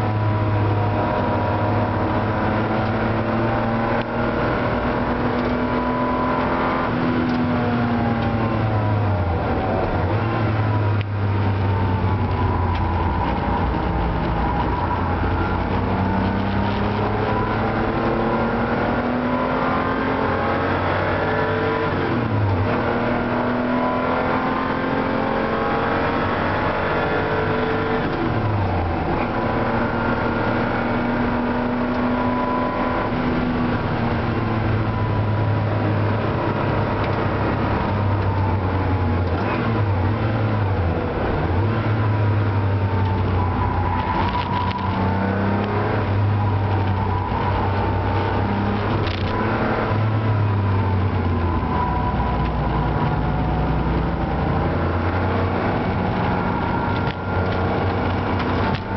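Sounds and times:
car engine accelerating: 0.0s - 58.9s.

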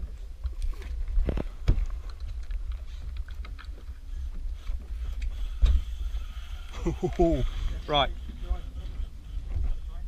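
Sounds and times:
wind rumbling on microphone: 0.0s - 10.0s.

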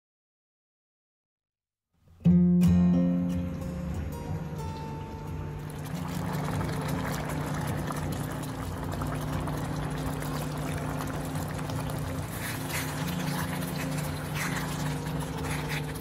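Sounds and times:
gravy bubbling in a pan: 5.6s - 16.0s.

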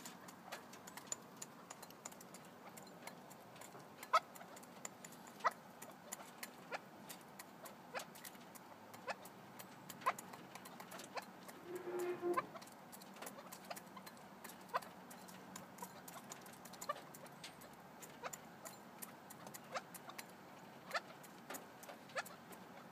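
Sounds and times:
birds pecking grain from a bowl: 0.0s - 22.9s
low bird call: 11.2s - 12.7s.

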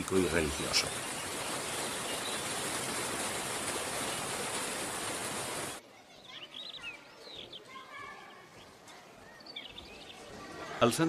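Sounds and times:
river rushing over rapids: 0.0s - 5.8s
faint bird chirps: 6.0s - 10.8s.

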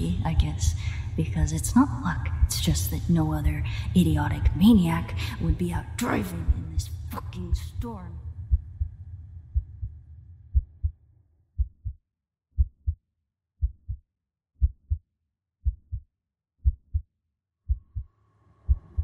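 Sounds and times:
heartbeat thumps: 1.4s - 3.6s, 5.4s - 7.9s, 8.5s - 9.9s, 10.5s - 11.0s, 11.6s - 12.0s, 12.6s - 13.0s, 13.6s - 14.0s, 14.6s - 15.0s, 15.6s - 17.1s, 17.7s - 18.1s, 18.7s - 19.0s.

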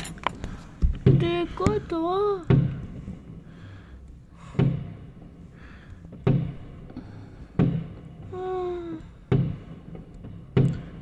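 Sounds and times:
muffled firework bangs: 7.6s - 8.3s, 9.3s - 11.0s.

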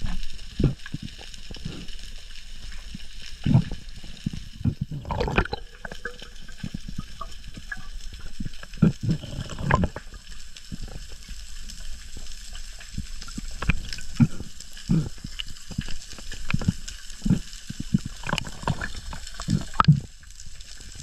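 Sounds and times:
crackling clicks: 0.0s - 21.0s
low thumps of water: 3.4s - 10.2s.

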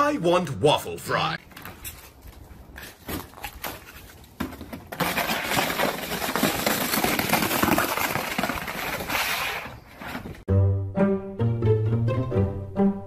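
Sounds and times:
disc scraping and crunching on snow: 1.7s - 10.4s.

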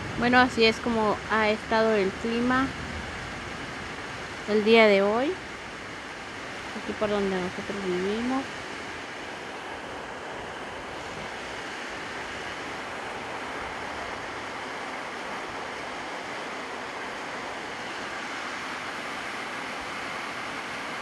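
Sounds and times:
heavy rain on a metal roof: 0.0s - 21.0s.

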